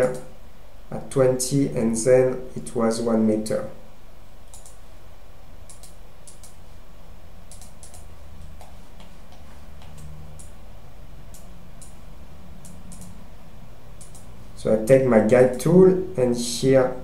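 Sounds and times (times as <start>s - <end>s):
steady low hum: 0.0s - 17.0s
mouse buttons clicking: 7.5s - 8.7s, 12.6s - 13.2s, 14.0s - 14.3s.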